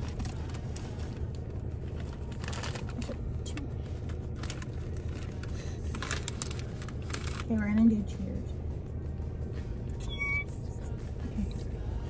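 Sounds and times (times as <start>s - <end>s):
foil snack bag crinkling: 0.0s - 3.2s, 4.0s - 7.5s
low steady hum: 0.0s - 12.0s.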